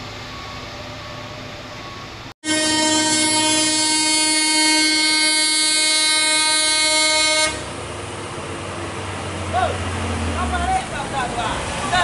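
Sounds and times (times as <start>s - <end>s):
truck horn blast: 2.4s - 7.7s
truck engine rumble: 3.2s - 12.0s.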